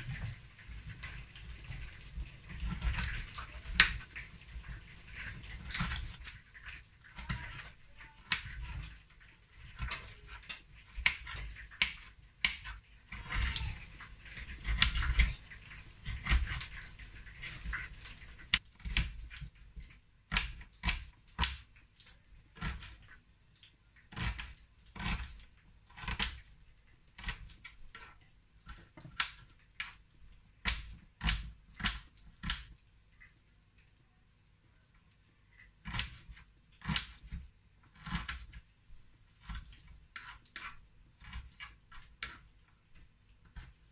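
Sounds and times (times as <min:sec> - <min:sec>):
knife chopping on wooden board: 0:30.6 - 0:32.7, 0:35.8 - 0:38.6.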